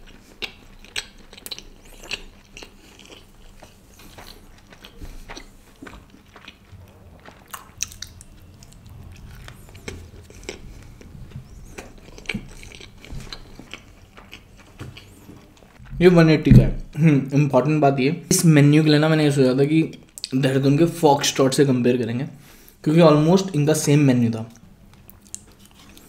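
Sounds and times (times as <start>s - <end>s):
person chewing food: 0.0s - 15.9s, 24.9s - 26.0s.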